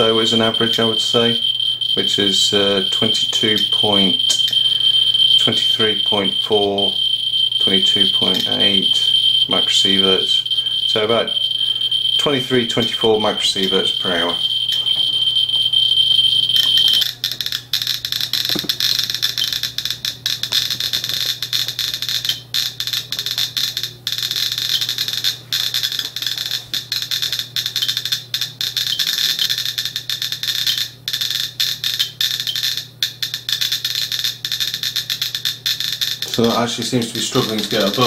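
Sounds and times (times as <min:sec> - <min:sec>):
steady high-pitched tone: 0:00.0 - 0:17.1, 0:36.2 - 0:38.0
geiger counter clicking rapidly: 0:00.0 - 0:38.0.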